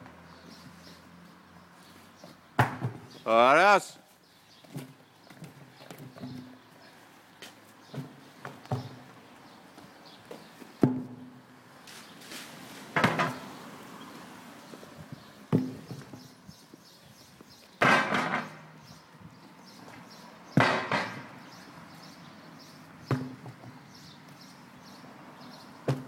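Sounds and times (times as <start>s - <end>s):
tyre thudding on concrete: 2.6s - 3.2s, 7.4s - 9.1s, 9.8s - 11.3s, 12.9s - 13.5s, 15.2s - 16.4s, 17.8s - 18.6s, 19.8s - 21.5s, 23.0s - 24.1s.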